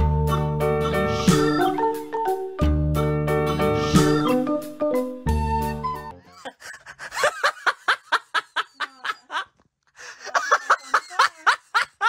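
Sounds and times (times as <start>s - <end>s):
person giggling: 6.2s - 12.0s.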